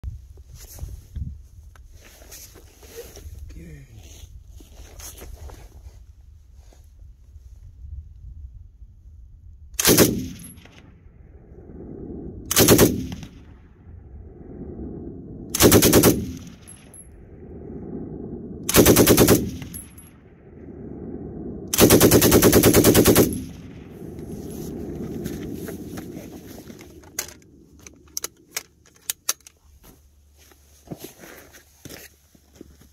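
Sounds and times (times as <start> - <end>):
machine gun bursts: 9.8 - 10.4, 12.5 - 13.1, 15.6 - 16.5, 18.7 - 19.8, 21.8 - 23.5
low rumbling echo: 9.8 - 28.5.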